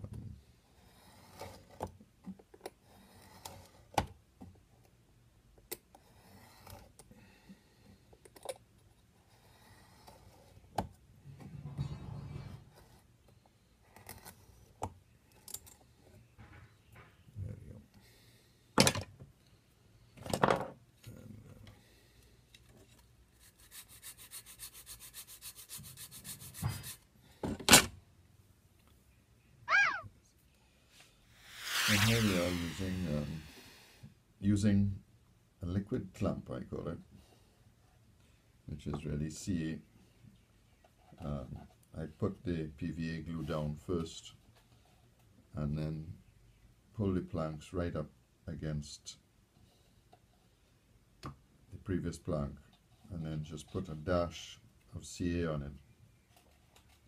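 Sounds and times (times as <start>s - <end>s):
hand-sanding wooden plank: 23.4s - 27.0s, 31.4s - 34.0s
hand tool scraping wood: 31.4s - 34.0s.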